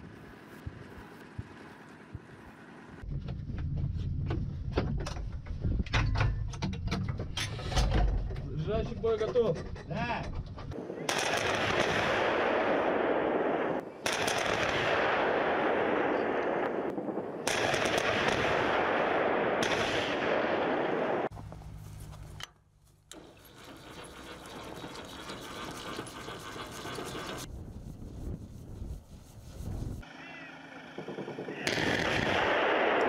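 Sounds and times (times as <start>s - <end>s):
rapid weapon fire: 11.1s - 21.3s, 31.1s - 33.0s.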